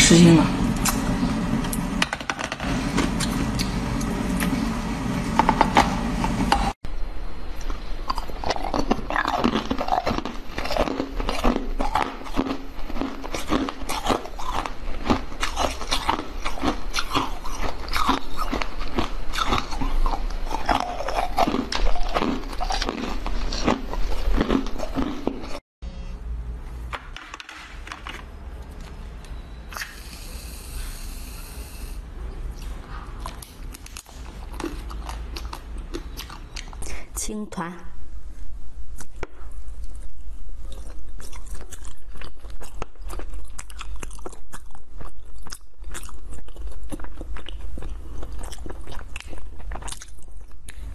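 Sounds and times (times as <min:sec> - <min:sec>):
chewing: 0:07.6 - 0:25.6, 0:32.5 - 0:36.8, 0:39.0 - 0:50.9
teeth crunching ice treats: 0:07.6 - 0:25.6, 0:39.8 - 0:50.9.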